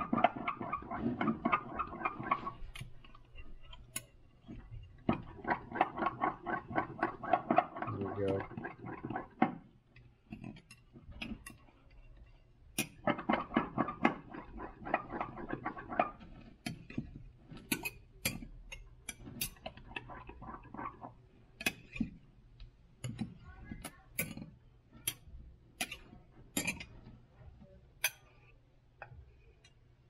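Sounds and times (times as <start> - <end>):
stirrer clinking against glass: 25.8 - 27.0.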